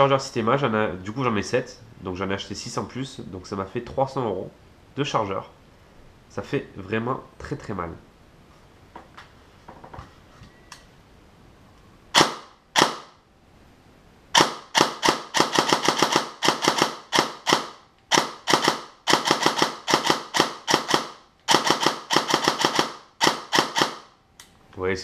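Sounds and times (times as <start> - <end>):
airsoft gun shots: 12.1 - 13.2, 14.4 - 24.1.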